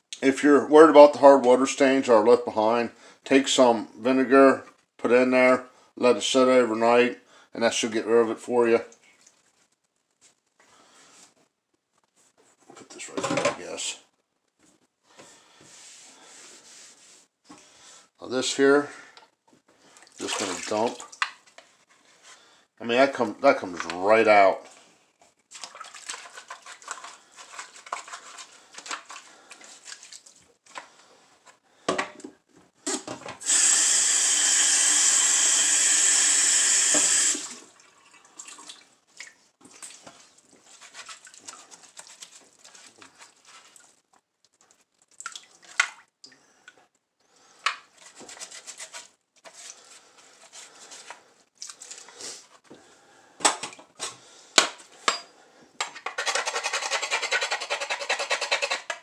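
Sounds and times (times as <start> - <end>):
sponge scrubbing plastic: 15.6 - 17.3, 25.5 - 30.8, 39.6 - 45.0, 47.9 - 52.6
faucet running: 33.4 - 38.2.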